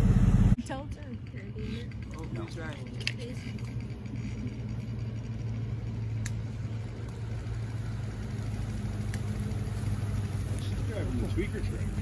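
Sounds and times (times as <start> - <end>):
truck engine driving past: 0.0 - 0.6, 3.5 - 12.0.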